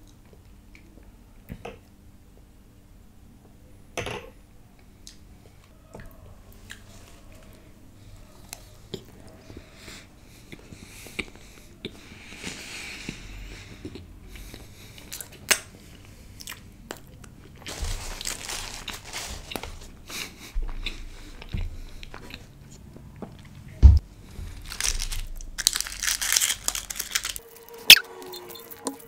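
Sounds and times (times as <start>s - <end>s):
chewing and crunching: 6.0s - 7.7s, 10.3s - 29.0s
wrapper crinkling and tearing: 17.6s - 20.0s, 24.3s - 29.0s.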